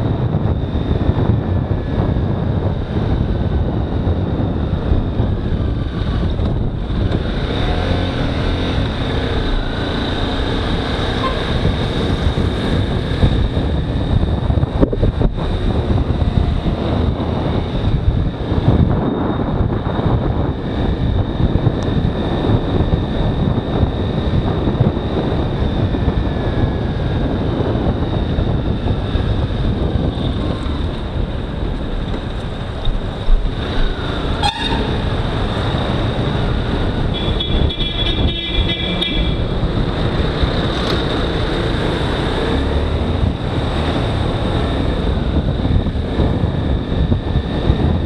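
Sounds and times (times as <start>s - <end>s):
motorcycle running at speed: 0.0s - 48.0s
wind and road noise: 0.0s - 48.0s
vehicle horn: 34.4s - 35.0s, 37.1s - 39.5s.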